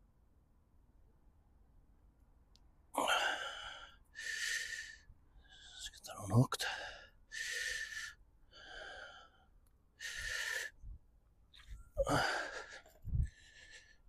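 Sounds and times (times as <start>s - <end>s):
man breathing hard: 3.0s - 6.0s, 6.6s - 11.0s, 11.6s - 14.0s.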